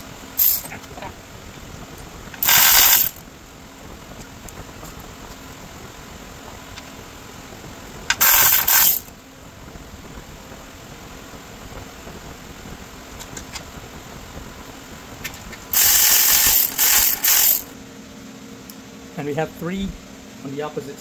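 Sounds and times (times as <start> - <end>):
power driver spinning bolts: 0.4 - 1.0, 2.3 - 3.2, 8.1 - 9.1, 15.7 - 17.7.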